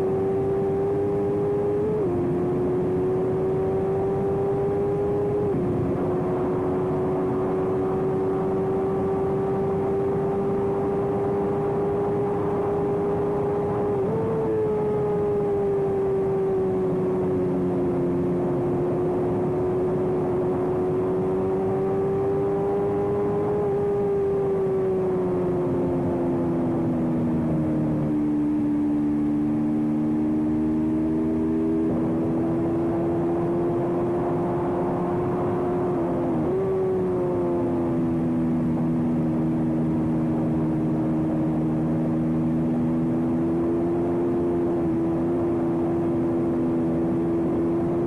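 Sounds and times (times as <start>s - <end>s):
racing motorcycle engine high revs: 0.0s - 48.0s
rushing wind noise: 4.4s - 7.8s.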